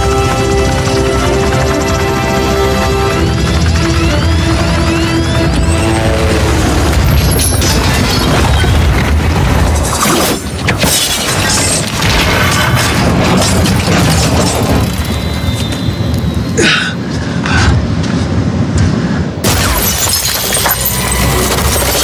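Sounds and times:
film score music: 0.0 - 10.9.

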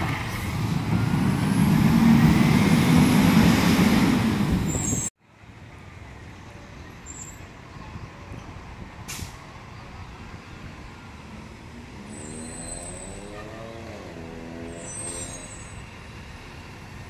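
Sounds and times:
garbage truck diesel engine: 0.0 - 5.1.

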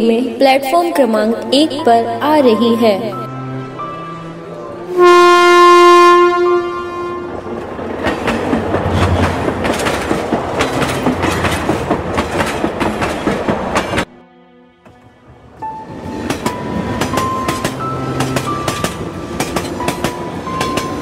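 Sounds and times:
train horn blast: 3.3 - 7.6
train wheels clattering: 7.5 - 14.1, 16.2 - 21.0.

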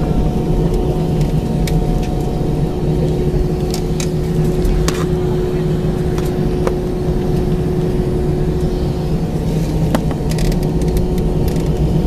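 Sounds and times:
jet engine hum: 0.0 - 12.0.

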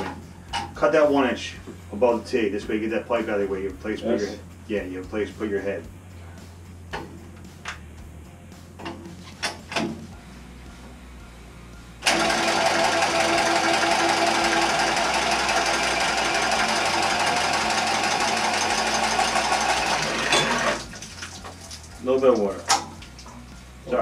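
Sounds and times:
power tool cutting copper pipe: 12.0 - 21.0.

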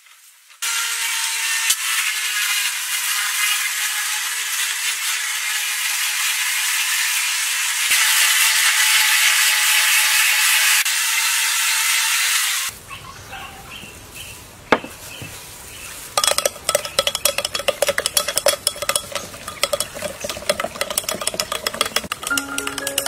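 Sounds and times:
spoon clinking in a jug: 16.2 - 23.0
light marimba-like music: 22.2 - 23.0.

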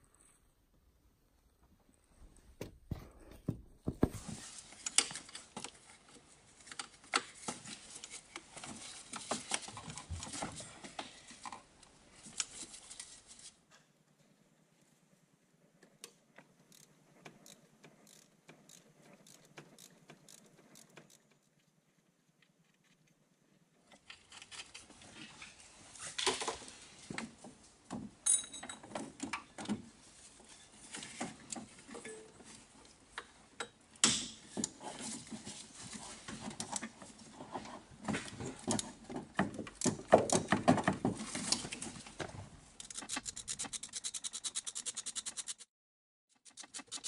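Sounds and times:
ratchet spanner clicks: 16.7 - 21.2, 42.8 - 45.6
hand tools clinking on metal: 28.2 - 28.9.

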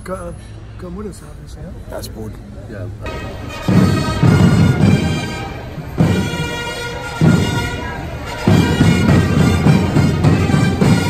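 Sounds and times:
bagpipes playing: 3.1 - 11.0
heavy drumming: 3.1 - 11.0.

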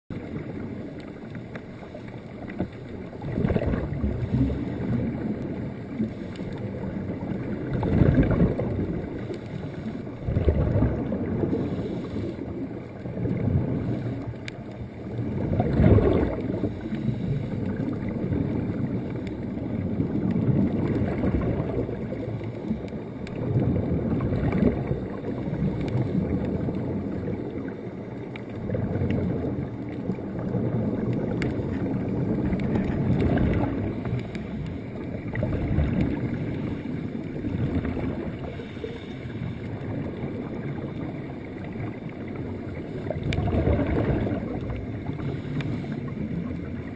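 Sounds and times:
air bubbles streaming: 0.1 - 46.9
underwater rushing rumble: 0.1 - 46.9.

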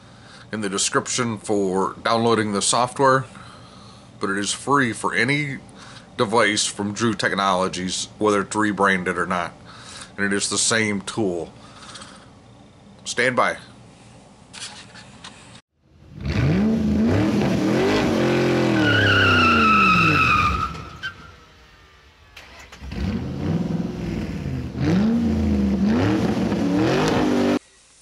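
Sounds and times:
car engine revving: 16.0 - 27.6
tyres squealing: 18.4 - 21.4.

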